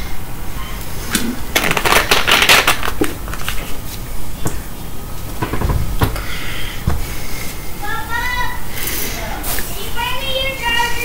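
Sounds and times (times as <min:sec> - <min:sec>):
bottle crackling and clicking: 0:01.6 - 0:03.6.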